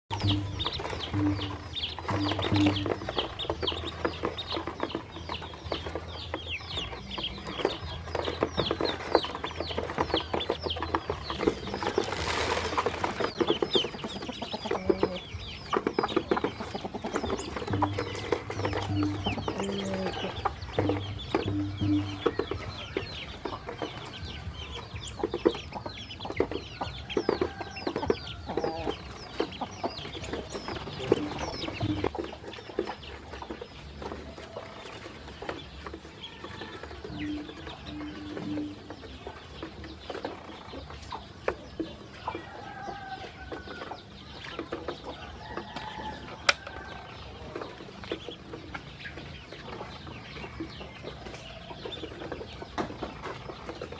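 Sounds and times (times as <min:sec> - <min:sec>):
ducklings peeping: 0:00.1 - 0:53.9
bills pecking on plastic: 0:00.4 - 0:21.3.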